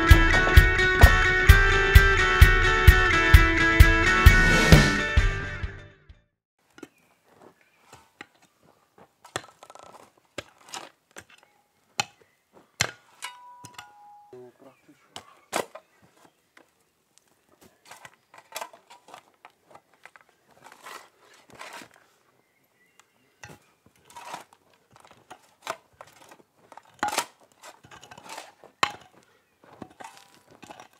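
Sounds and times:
shovel scraping soil: 0:09.2 - 0:12.2, 0:17.7 - 0:22.2, 0:23.6 - 0:30.9.

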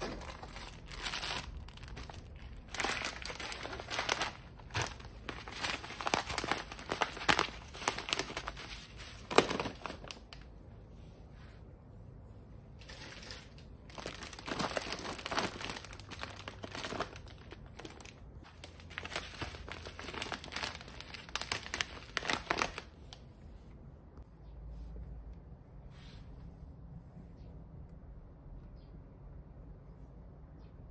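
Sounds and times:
plastic bags crinkling: 0:00.0 - 0:10.5, 0:12.8 - 0:23.0.

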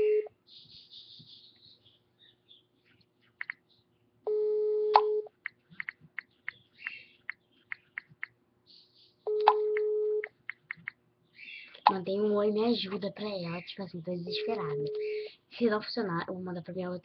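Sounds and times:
telephone ringback tone: 0:04.3 - 0:05.3, 0:09.3 - 0:10.3.

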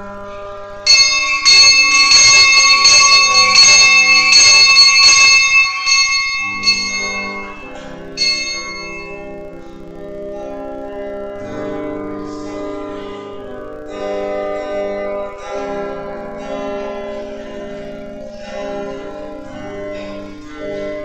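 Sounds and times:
soft guitar and keyboard music: 0:00.0 - 0:01.4, 0:06.7 - 0:21.0
bells ringing: 0:00.8 - 0:09.6.

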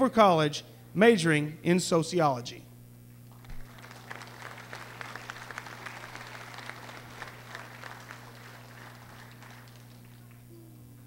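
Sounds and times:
audience applauding: 0:03.4 - 0:10.5.

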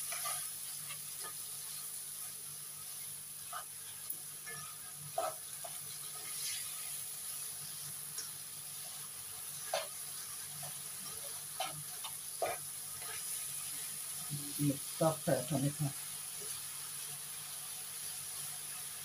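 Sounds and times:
meat sizzling in a wok: 0:00.0 - 0:19.0
spatula scraping wok: 0:04.4 - 0:07.0, 0:09.6 - 0:14.0.

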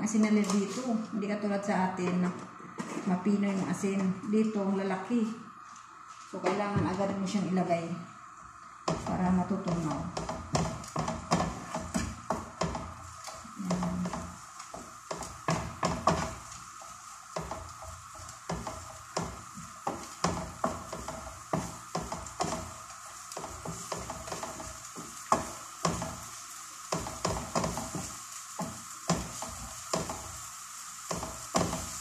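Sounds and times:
onion and garlic sizzling: 0:00.0 - 0:32.0
spatula scraping a frying pan: 0:08.8 - 0:32.0.

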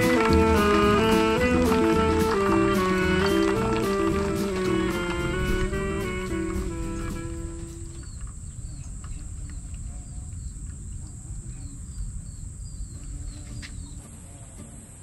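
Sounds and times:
background music: 0:00.0 - 0:08.1
high insect drone: 0:00.0 - 0:14.0.

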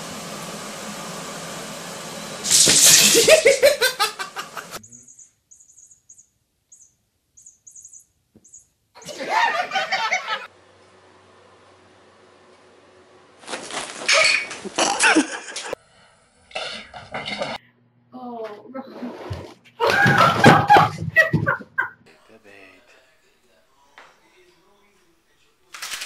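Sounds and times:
person laughing loudly: 0:03.0 - 0:04.8, 0:09.0 - 0:10.5, 0:14.6 - 0:15.8, 0:19.8 - 0:22.0.

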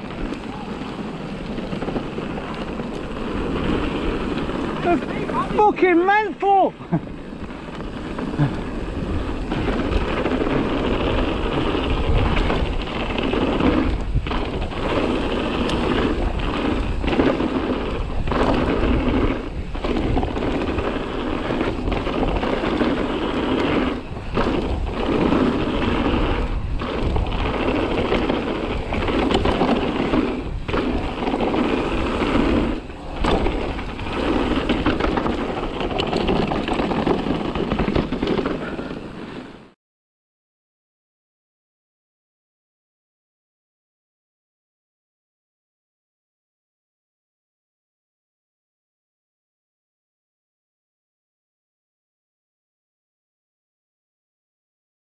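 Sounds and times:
bike tyres rattling on rocks: 0:00.0 - 0:39.8.

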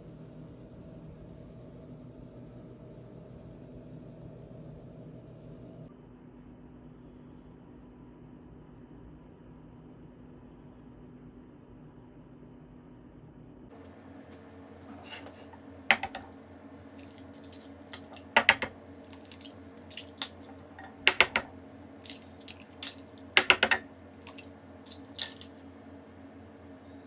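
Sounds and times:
low steady hum: 0:00.0 - 0:27.0
eggs cracked against a bowl: 0:16.9 - 0:25.6.

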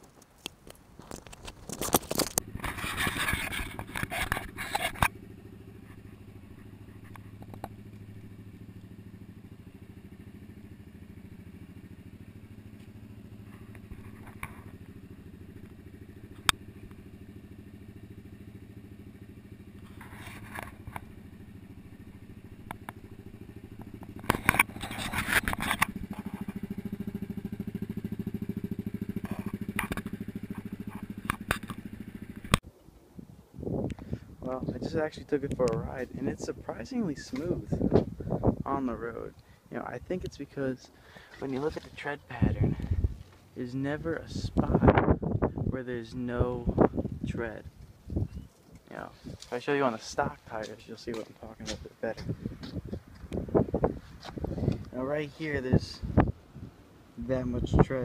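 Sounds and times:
handling knocks and rustles: 0:00.0 - 0:05.1, 0:41.2 - 0:42.3
atv engine idling: 0:01.1 - 0:32.6, 0:33.2 - 0:58.0.

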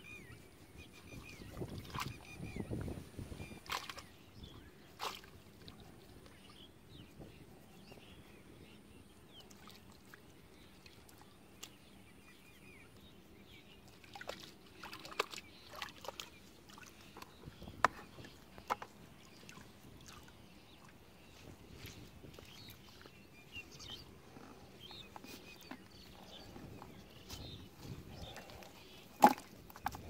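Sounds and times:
muddy water sloshing and splashing: 0:00.8 - 0:06.6, 0:13.7 - 0:30.0.

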